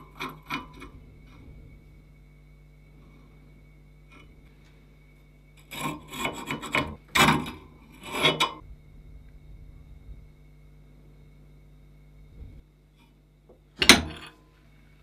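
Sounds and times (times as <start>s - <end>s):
metal scraping on metal: 0.0s - 2.2s, 5.6s - 8.7s.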